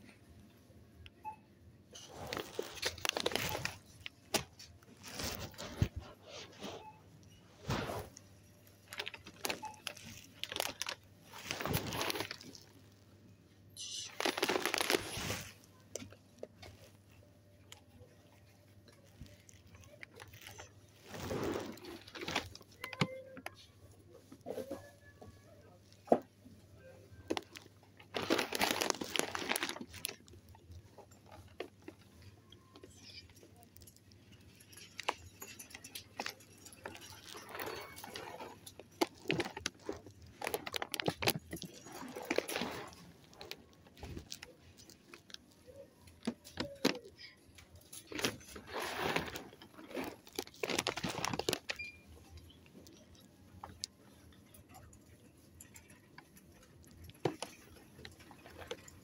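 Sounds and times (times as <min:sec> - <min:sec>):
foil bag crinkling: 0:02.0 - 0:06.4, 0:08.7 - 0:12.8, 0:13.8 - 0:23.1, 0:27.3 - 0:53.8.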